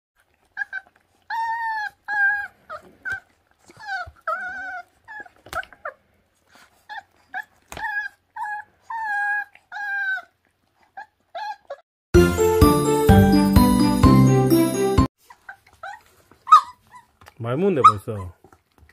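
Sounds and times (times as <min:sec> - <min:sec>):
puppies whining and yelping: 0:00.2 - 0:11.8, 0:15.2 - 0:17.2
bright jingly tune: 0:12.2 - 0:15.1.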